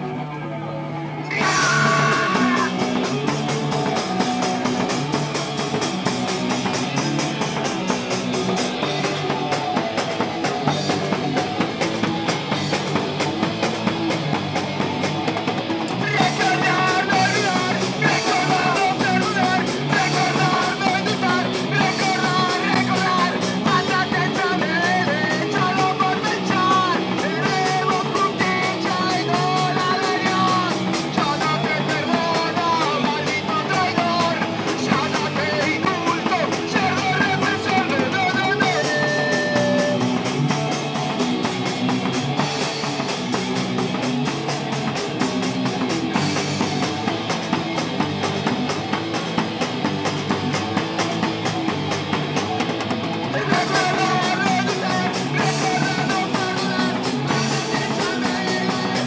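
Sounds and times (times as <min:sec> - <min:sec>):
punk band playing live: 0:00.0 - 0:59.0
person shouting singing: 0:01.2 - 0:04.0, 0:16.0 - 0:40.2, 0:53.3 - 0:59.0.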